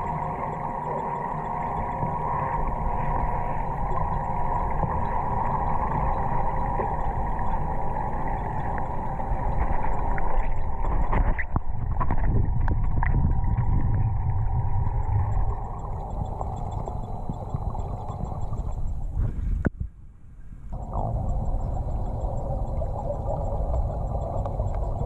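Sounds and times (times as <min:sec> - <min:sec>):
small clicks and gurgles: 0:00.0 - 0:19.9, 0:20.7 - 0:25.0
underwater rumble and hum: 0:00.0 - 0:25.0.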